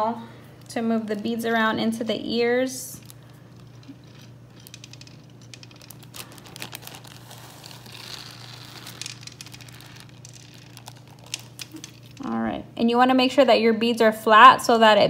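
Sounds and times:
plastic bag rustling: 1.0 - 12.3
plastic beads clicking: 3.0 - 12.3.

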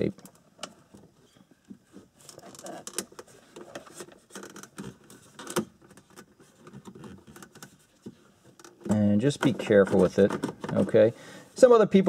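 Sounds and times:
screwdriver scraping plastic: 9.3 - 11.0.

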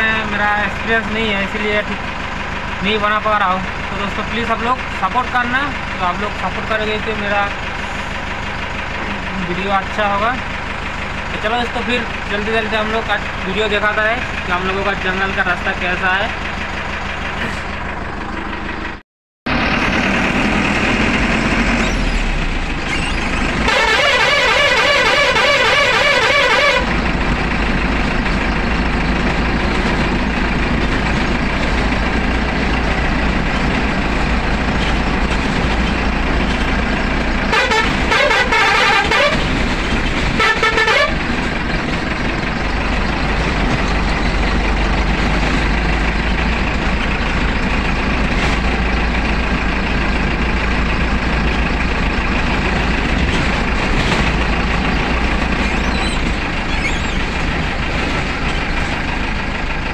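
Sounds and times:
bus engine running: 0.0 - 59.9
bus horn: 22.9 - 27.2, 37.4 - 39.6, 40.3 - 41.5.

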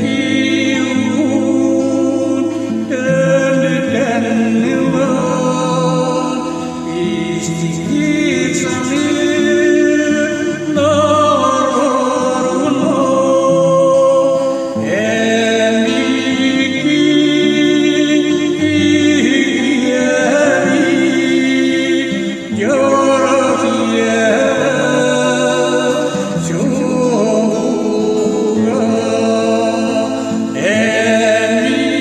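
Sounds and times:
man singing with vibrato: 0.0 - 32.0.

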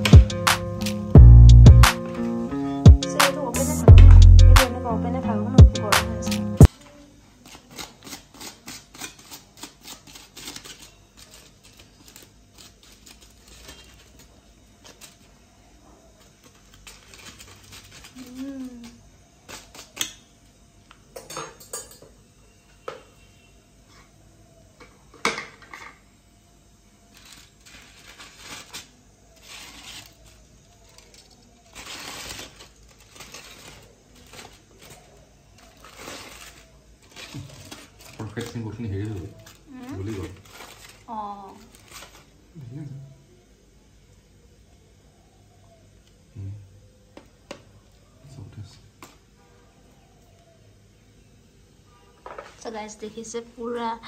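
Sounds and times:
aluminium foil crinkling: 6.2 - 20.3, 27.0 - 42.6.

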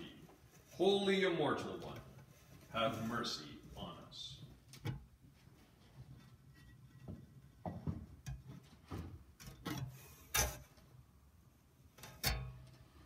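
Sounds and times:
faint irregular knocks and clicks: 4.6 - 10.9.

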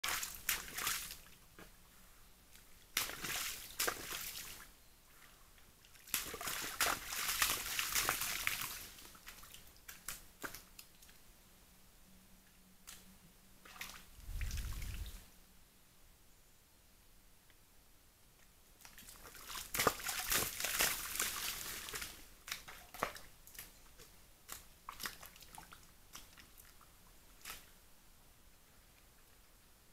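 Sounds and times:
water and mud sloshing: 3.0 - 4.6, 5.9 - 10.7, 13.7 - 15.2, 18.8 - 23.7
low rumble: 14.2 - 15.2.

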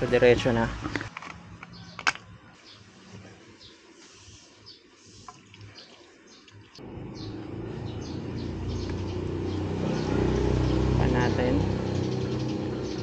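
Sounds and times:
scooter engine starting and droning: 6.8 - 13.0.

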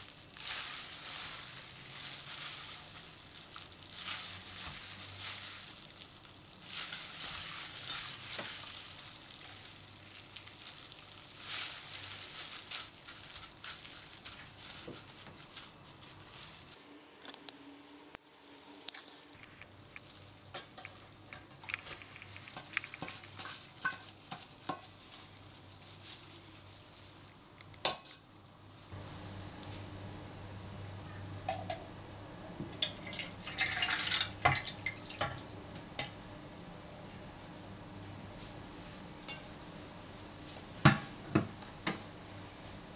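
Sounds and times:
wet squelching of squeezed pulp: 18.6 - 25.7.

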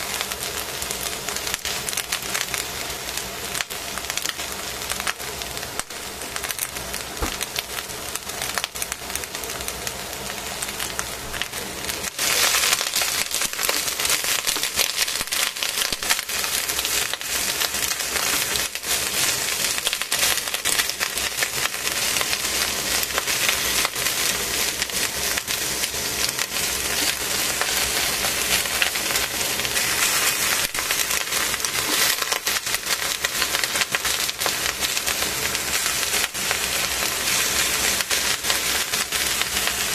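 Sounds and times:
vegetables sizzling in a pot: 0.0 - 39.9.

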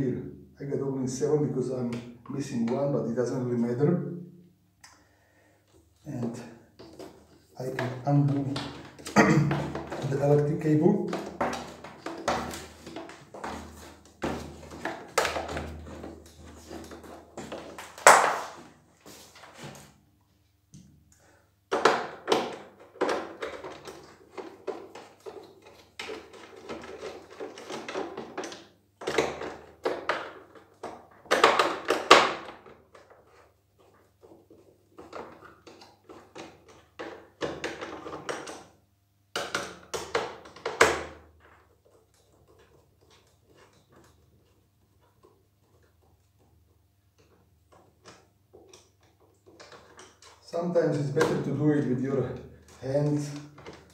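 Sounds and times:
clicks and plastic rattles: 47.2 - 50.5.

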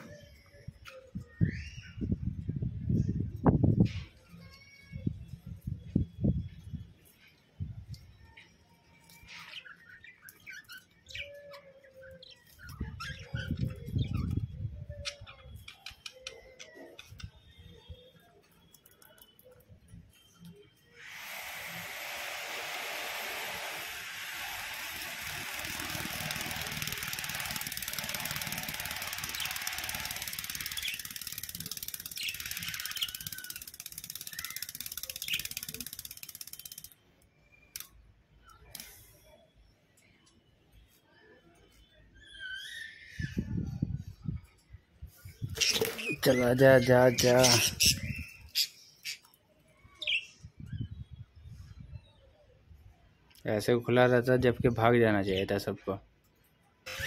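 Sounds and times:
fast high-pitched rattle: 21.0 - 37.0
budgerigars chirping: 45.6 - 49.2.

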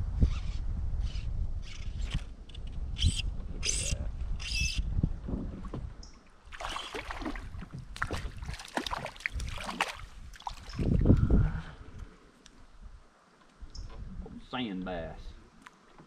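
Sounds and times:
water splashing and dripping: 6.5 - 11.2.

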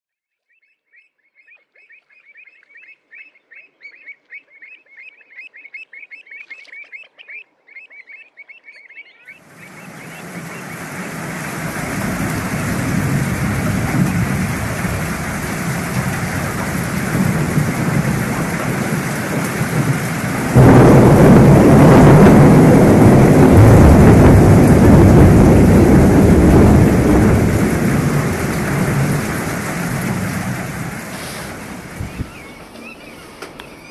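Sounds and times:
birds calling high notes: 8.0 - 13.3, 31.2 - 33.9
heavy rain on water: 9.4 - 33.9
wind on microphone: 9.5 - 32.7.

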